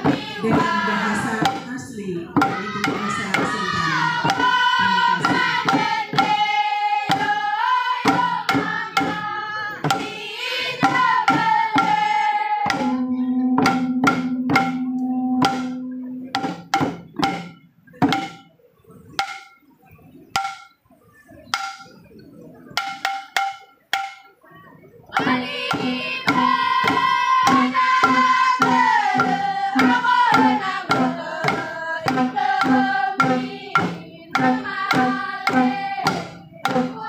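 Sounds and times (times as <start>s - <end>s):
group singing in chorus: 0.0s - 14.8s, 25.1s - 37.0s
hand drums beating: 0.0s - 18.5s, 19.1s - 19.6s, 20.3s - 20.8s, 21.5s - 22.1s, 22.7s - 24.4s, 25.2s - 37.0s.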